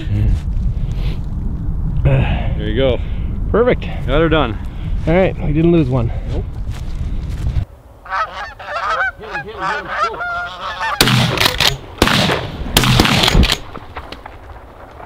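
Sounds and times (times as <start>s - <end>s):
geese honking: 8.0s - 11.5s
shotgun blasts: 11.0s - 14.1s.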